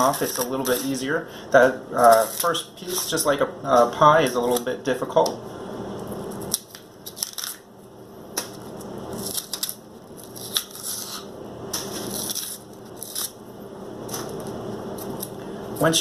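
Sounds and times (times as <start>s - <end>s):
plantain skin tearing: 0.0s - 1.0s, 6.3s - 7.6s, 8.4s - 13.4s.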